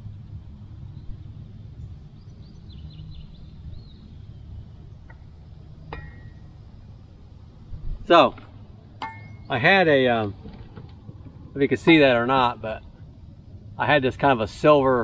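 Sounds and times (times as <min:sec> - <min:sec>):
low steady rumble: 0:00.0 - 0:15.0
high bird chirps: 0:09.0 - 0:09.6.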